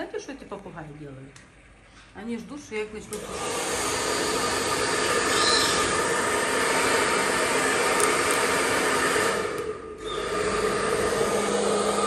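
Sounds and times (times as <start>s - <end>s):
blow dryer running: 3.0s - 12.0s.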